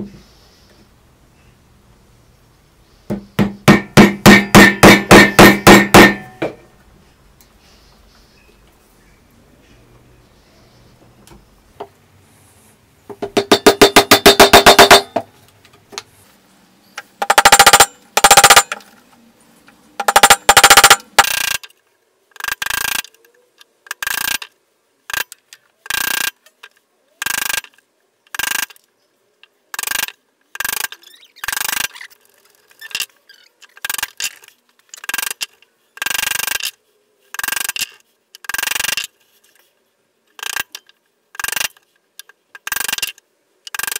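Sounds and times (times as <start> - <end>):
hammer striking chisel: 3.1 - 6.6, 13.2 - 15.3, 17.2 - 18.8, 20.0 - 21.3.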